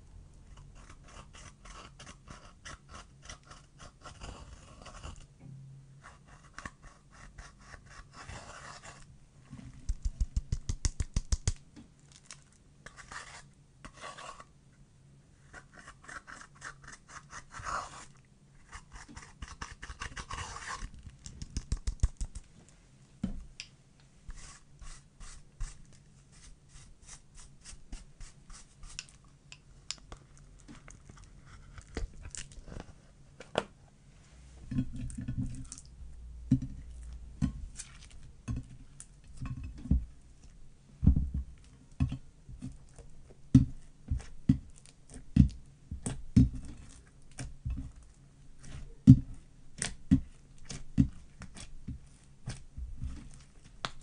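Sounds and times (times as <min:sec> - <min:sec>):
brush scraping eyeshadow: 0:12.9 - 0:14.5, 0:15.4 - 0:20.9, 0:24.3 - 0:29.1.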